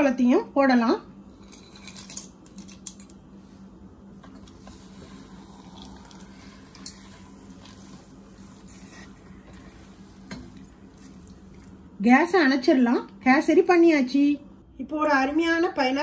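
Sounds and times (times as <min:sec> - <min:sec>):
low hum and hiss: 0:00.0 - 0:16.0
nuts dropping into pot: 0:01.5 - 0:03.2
spatula stirring thick paste: 0:04.4 - 0:11.8.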